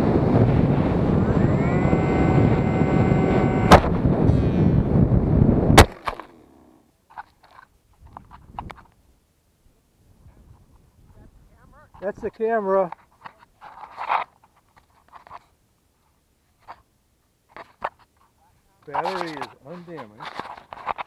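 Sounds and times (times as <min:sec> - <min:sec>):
electric motor whining: 0:00.2 - 0:05.0
sharp crack: 0:03.5 - 0:04.9, 0:05.7 - 0:06.4
faint rustles and clicks: 0:07.1 - 0:09.0, 0:11.8 - 0:21.0.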